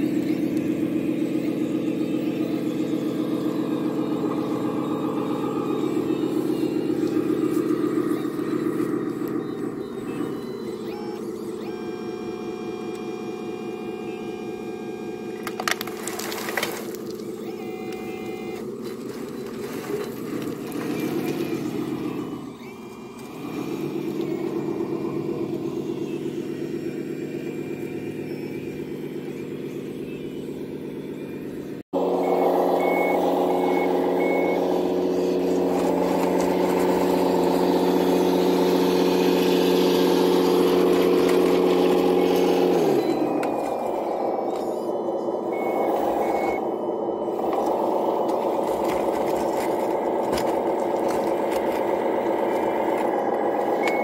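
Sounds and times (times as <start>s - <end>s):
louder simulated engine: 0.0s - 54.0s
simulated diesel engine: 0.0s - 54.0s
short reversing beeps: 1.2s - 15.4s, 17.2s - 20.0s, 32.1s - 54.0s.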